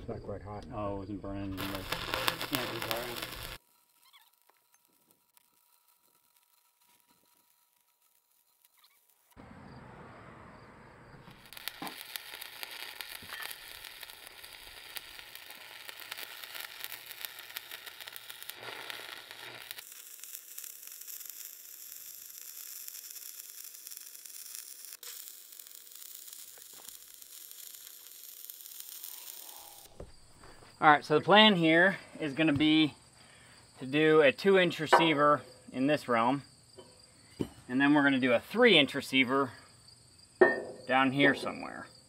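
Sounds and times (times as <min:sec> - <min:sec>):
welding arc crackling: 0:01.4 - 0:09.4, 0:11.2 - 0:30.7.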